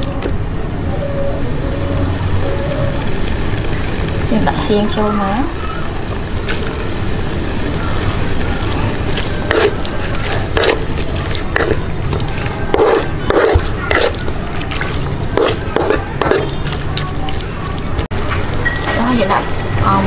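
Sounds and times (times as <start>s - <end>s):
wet stirring and scraping in a wok: 6.4s - 19.6s.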